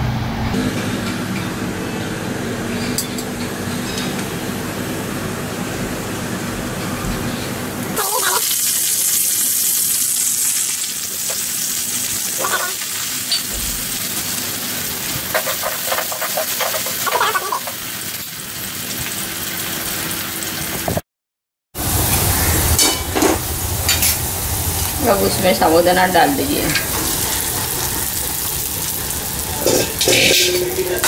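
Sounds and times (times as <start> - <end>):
food sizzling in hot oil: 8.0 - 20.9, 21.8 - 31.0.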